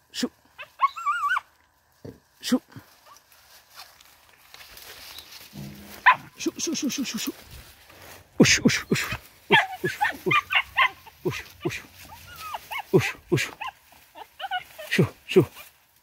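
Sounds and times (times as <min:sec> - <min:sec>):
dog barking and yelping: 0:00.6 - 0:01.6, 0:05.8 - 0:07.1, 0:08.8 - 0:15.7.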